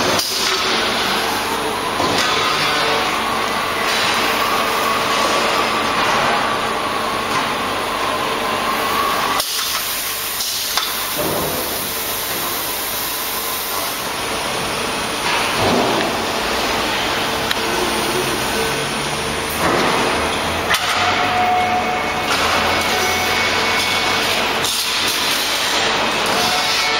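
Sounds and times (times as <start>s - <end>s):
wrapping machine hum and hiss: 0.0s - 26.9s.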